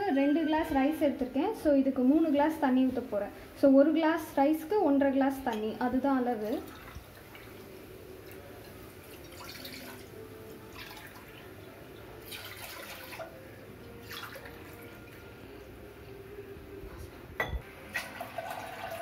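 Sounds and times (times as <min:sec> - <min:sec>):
water trickling into a steel cup: 0:06.5 - 0:13.4, 0:14.0 - 0:15.2, 0:17.9 - 0:19.0.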